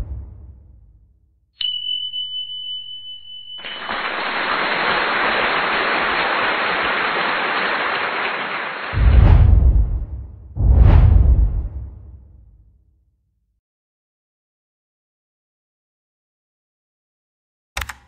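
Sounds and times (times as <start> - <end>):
rush of noise: 9.0 - 12.3.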